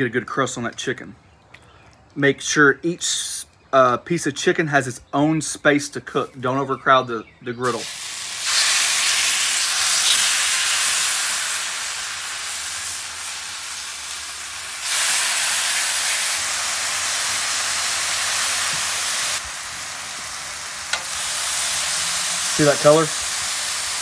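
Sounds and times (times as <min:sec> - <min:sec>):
chicken sizzling on a griddle: 0:07.7 - 0:24.0.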